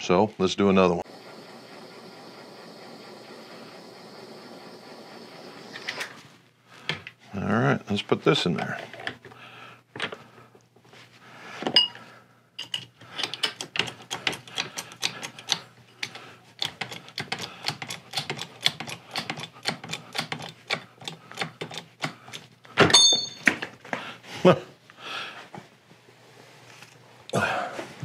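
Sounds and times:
ringing metal clank: 22.9 - 23.5.

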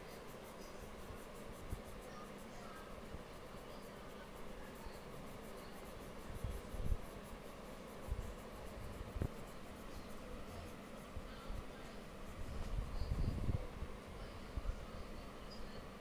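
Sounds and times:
crayon scribbling on paper: 0.0 - 14.0.

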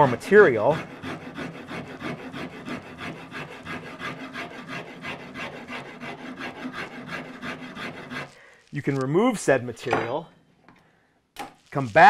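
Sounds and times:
hand rasp filing wood: 0.0 - 8.7.

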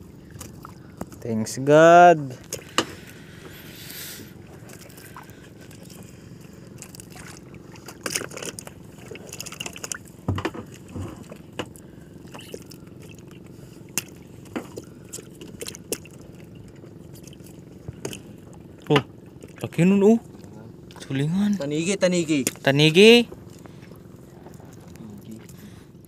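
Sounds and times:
boat engine running: 0.0 - 26.0
knocks and wet slaps of fish: 0.2 - 1.2, 2.4 - 3.6, 6.8 - 19.6, 22.4 - 22.7.

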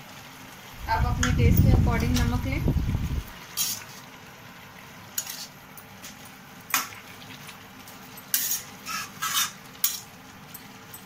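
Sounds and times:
food sizzling softly: 0.0 - 11.0
metal spatula scraping a pan: 3.5 - 4.0, 5.2 - 5.6, 8.2 - 10.2.

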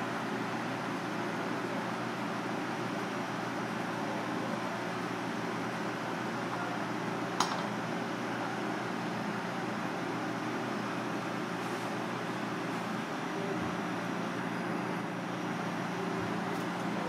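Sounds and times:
kitchen fan humming: 0.0 - 17.0.

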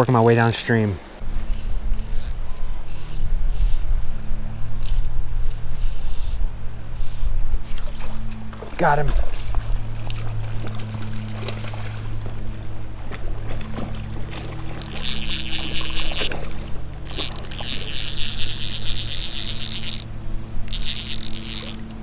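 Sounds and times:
low drone of tones: 1.2 - 22.0
fishing reel ratchet clicking: 2.0 - 2.4, 4.8 - 5.1, 14.7 - 22.0.

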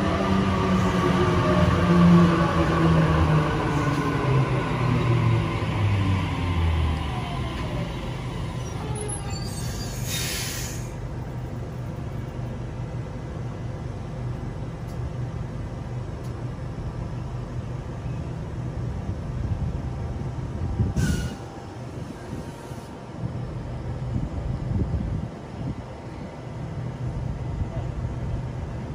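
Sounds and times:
electric train humming: 0.0 - 9.3, 11.1 - 28.9
short air hisses: 9.6 - 11.0, 21.0 - 21.4.

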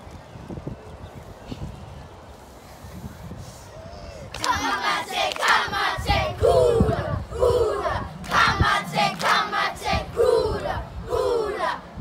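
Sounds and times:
children chanting in unison: 4.4 - 11.9.

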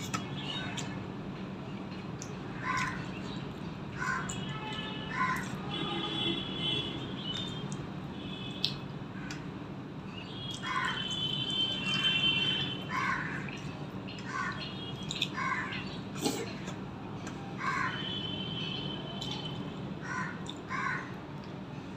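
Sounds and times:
crow cawing: 12.9 - 13.4, 17.6 - 18.1, 20.0 - 21.2.

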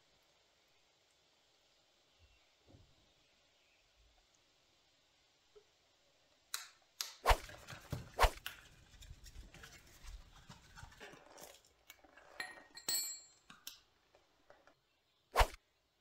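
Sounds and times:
metallic clink: 12.3 - 13.8.

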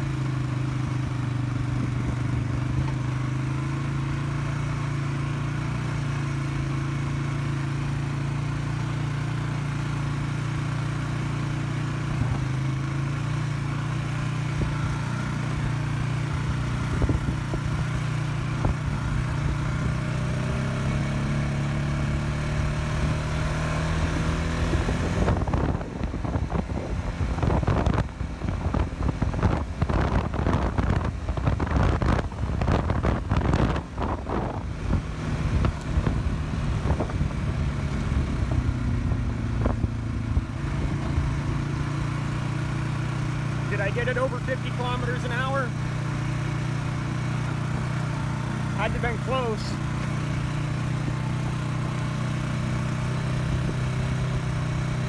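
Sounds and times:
atv engine running: 0.0 - 55.0
wind buffeting microphone: 16.9 - 17.7.

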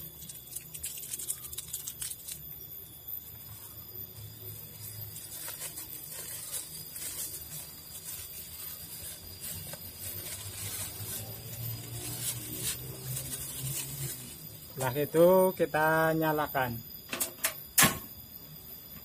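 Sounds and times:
plastic bag crinkling: 0.0 - 2.6, 4.3 - 15.2.

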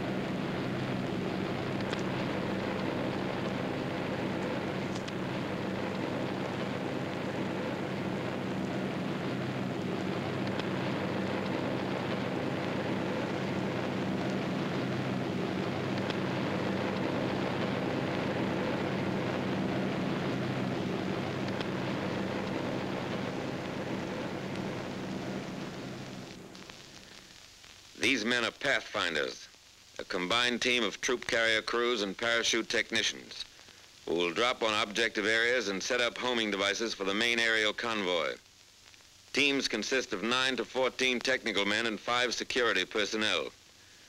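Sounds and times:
propeller aircraft engines droning: 0.0 - 26.6.

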